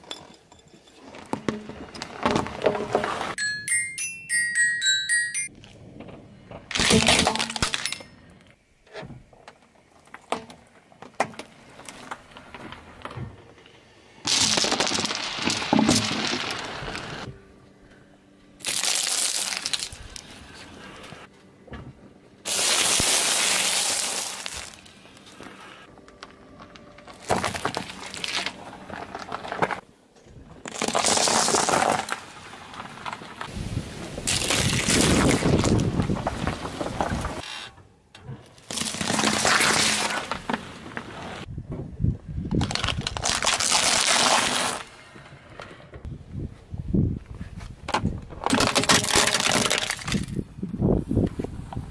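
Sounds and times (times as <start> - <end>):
tyre crushing objects: 1.0 - 3.4, 26.6 - 29.8, 30.6 - 33.4, 38.6 - 41.4.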